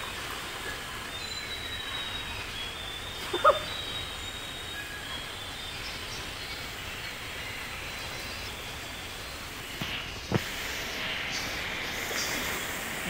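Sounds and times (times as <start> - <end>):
continuous even hiss: 0.0 - 13.0
faint high chirps: 1.1 - 7.6.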